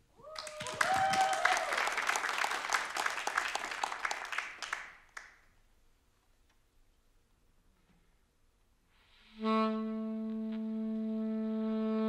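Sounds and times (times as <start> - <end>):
audience applauding: 0.3 - 5.4.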